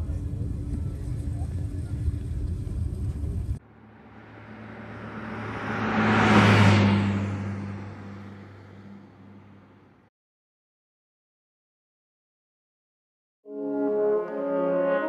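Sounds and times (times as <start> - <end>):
vehicle passing by: 3.6 - 10.1.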